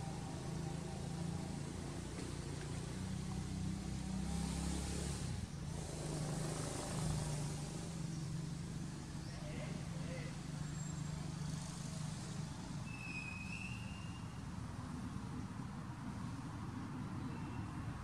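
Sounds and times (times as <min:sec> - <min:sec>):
engine humming: 0:00.0 - 0:18.0
hiss: 0:04.2 - 0:08.6.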